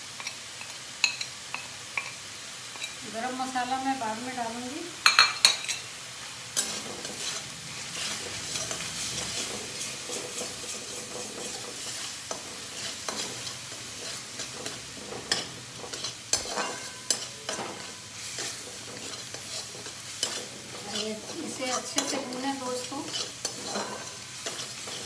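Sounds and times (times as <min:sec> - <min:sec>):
paste sizzling in oil: 0:00.0 - 0:25.0
spatula scraping a pan: 0:06.6 - 0:25.0.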